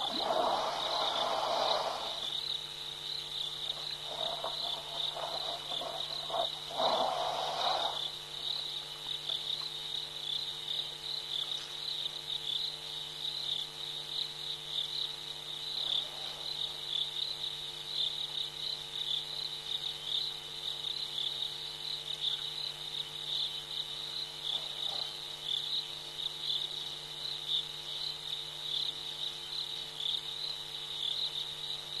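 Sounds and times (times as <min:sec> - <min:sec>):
insects trilling: 0:00.0 - 0:32.0.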